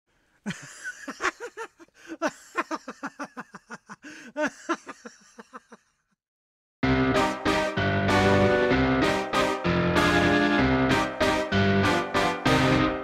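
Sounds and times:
man laughing: 0.4s - 6.1s.

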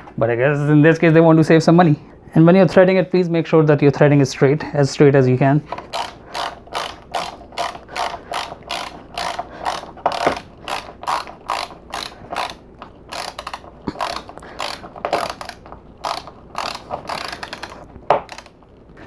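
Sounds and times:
ratchet screwdriver clicking: 5.8s - 18.5s.

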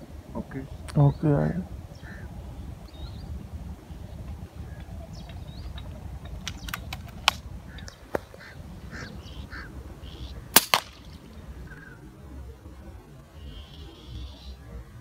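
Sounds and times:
birds calling: 0.0s - 15.0s
sharp clicks: 5.3s - 8.3s.

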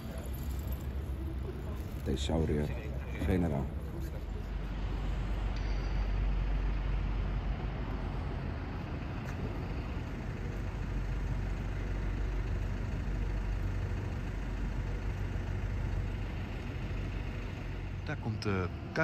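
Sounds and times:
city background rumble: 0.0s - 19.0s.

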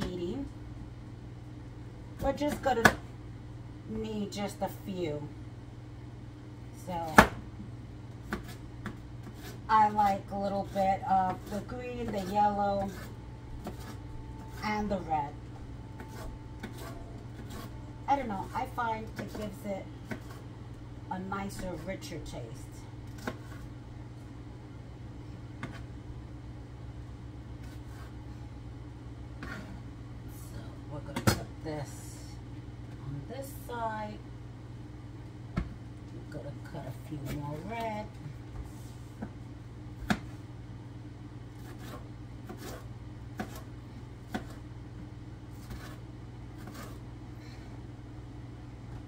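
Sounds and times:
low mechanical hum: 0.0s - 49.0s
knife slicing pepper: 41.6s - 43.7s.

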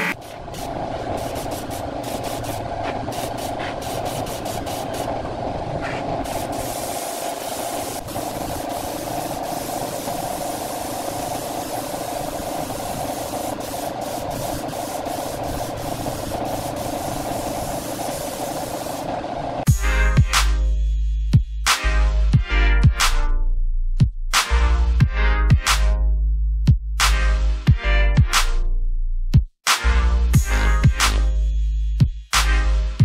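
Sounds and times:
compressed air hissing: 0.0s - 5.2s, 5.8s - 19.6s
steady machine hum: 0.0s - 19.7s.

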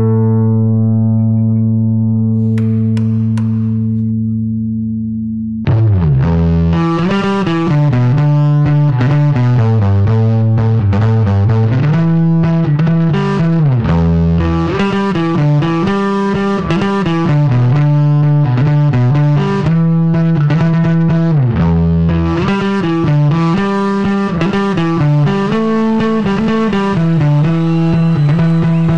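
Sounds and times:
distorted electric bass solo: 0.0s - 28.9s.

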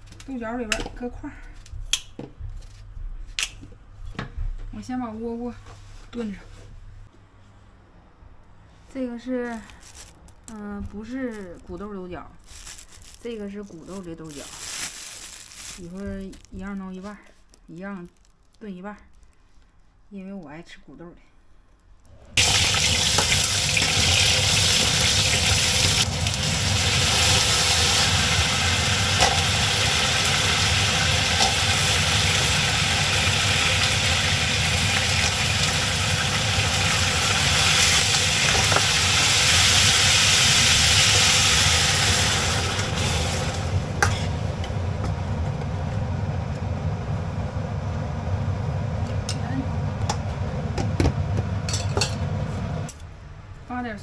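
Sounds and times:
beans sizzling in hot oil: 12.4s - 16.6s, 22.4s - 44.5s
low steady hum: 42.6s - 54.0s.

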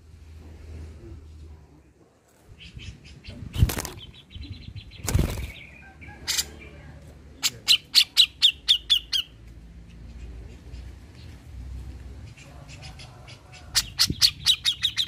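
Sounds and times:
wings fluttering: 3.5s - 4.2s, 4.9s - 5.7s.

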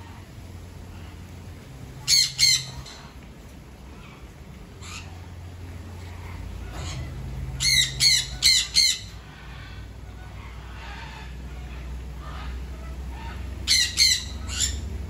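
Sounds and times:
cockatoo squawking: 2.0s - 3.2s, 6.2s - 15.0s.

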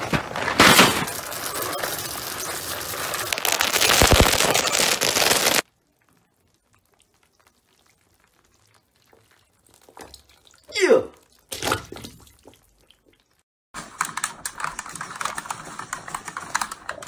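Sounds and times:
dry cereal pouring: 1.0s - 5.6s.

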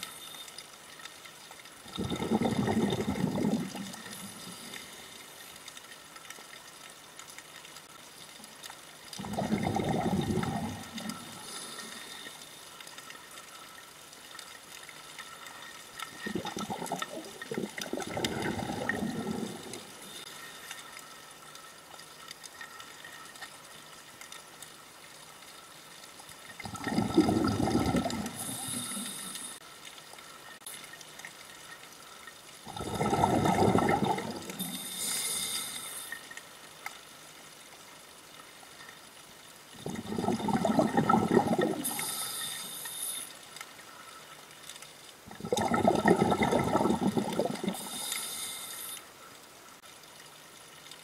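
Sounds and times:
faint steady hiss: 0.0s - 51.0s
underwater breath bubbles: 1.9s - 5.2s, 9.2s - 12.5s, 16.0s - 20.6s, 26.6s - 29.6s, 32.6s - 36.2s, 39.8s - 43.3s, 45.3s - 49.0s.

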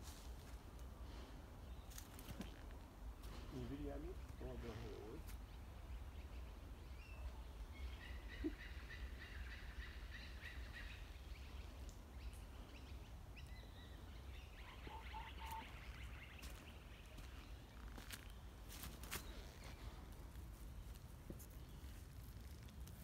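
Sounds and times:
bird singing: 4.4s - 20.1s.

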